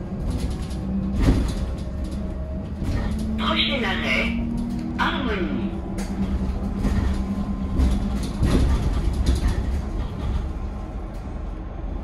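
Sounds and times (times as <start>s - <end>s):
knocks and rattles: 0.0s - 3.4s, 5.8s - 11.3s
bus road rumble: 0.0s - 12.0s.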